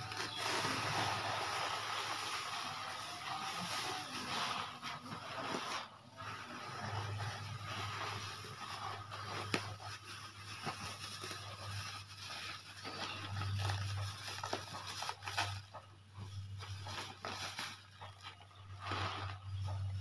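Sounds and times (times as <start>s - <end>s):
granules pouring onto a heap: 0.0s - 13.3s
plastic bag rustling: 0.0s - 20.0s.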